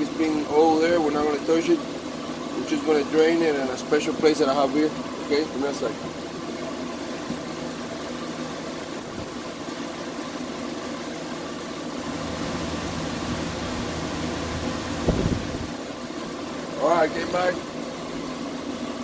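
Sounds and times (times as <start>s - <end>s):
machine humming: 0.0s - 19.0s
low thump: 15.0s - 15.5s.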